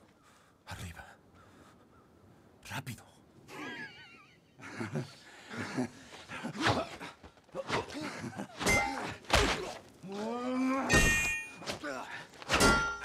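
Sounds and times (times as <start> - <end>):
men shouting and grunting: 4.8 - 13.0
sword clashing on shield: 12.5 - 13.0.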